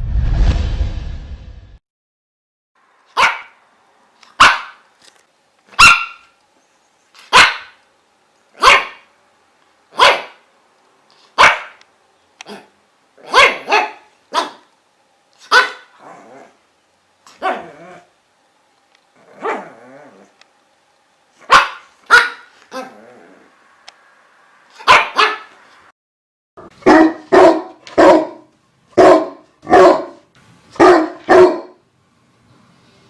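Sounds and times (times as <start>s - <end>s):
dog barking: 3.1s - 3.6s, 4.4s - 4.8s, 5.7s - 6.4s, 7.2s - 7.8s, 8.6s - 9.1s, 9.9s - 10.5s, 11.3s - 11.8s, 12.4s - 14.7s, 15.4s - 16.0s, 17.4s - 17.8s, 19.4s - 19.8s, 21.4s - 22.9s, 24.8s - 25.6s, 26.7s - 31.8s.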